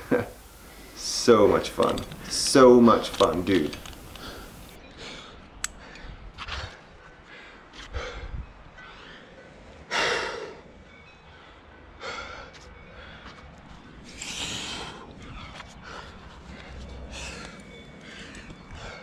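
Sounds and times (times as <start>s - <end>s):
person breathing hard: 3.9s - 10.7s, 11.3s - 19.0s.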